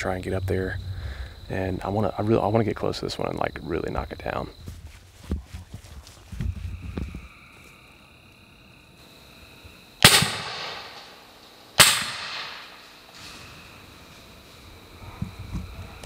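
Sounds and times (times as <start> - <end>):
rifle shots with echo: 10.0 - 11.2, 11.8 - 12.8.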